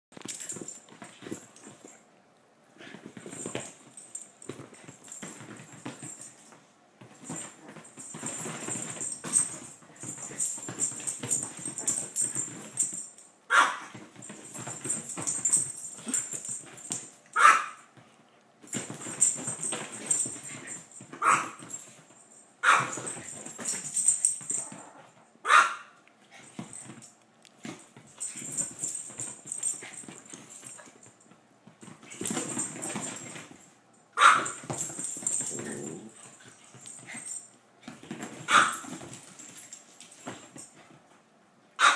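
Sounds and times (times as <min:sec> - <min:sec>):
rustling and scuffling: 0:00.1 - 0:02.0, 0:02.7 - 0:25.3, 0:26.2 - 0:41.3
dogs barking: 0:25.5 - 0:25.9.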